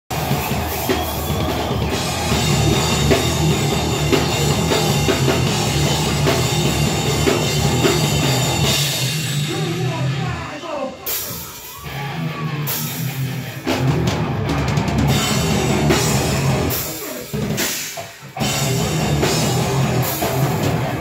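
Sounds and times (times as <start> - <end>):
drum kit hits: 0.1 - 10.0
bass guitar: 0.1 - 21.0
electric guitars: 0.1 - 21.0.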